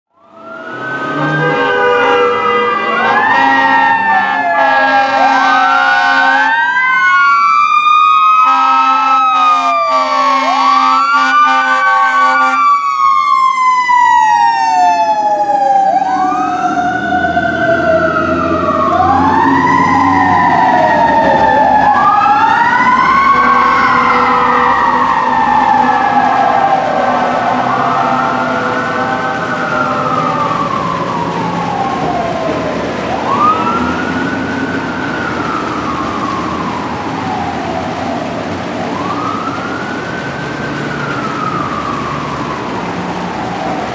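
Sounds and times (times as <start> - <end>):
fire engine siren wailing: 0.1 - 43.9
air horn blasts: 1.1 - 6.6, 8.4 - 12.6, 23.2 - 25.0, 27.5 - 29.3.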